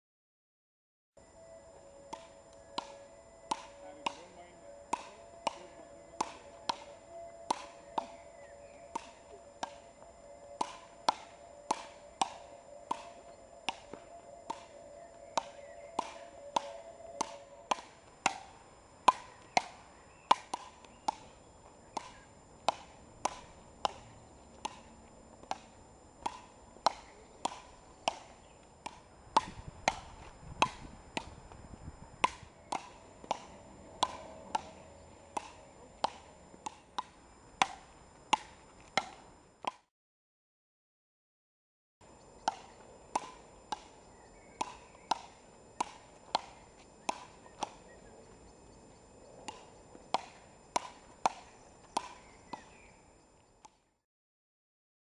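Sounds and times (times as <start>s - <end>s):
wooden paddles hitting ball: 2.1s - 31.4s, 32.2s - 39.2s, 42.4s - 47.8s, 49.4s - 52.8s.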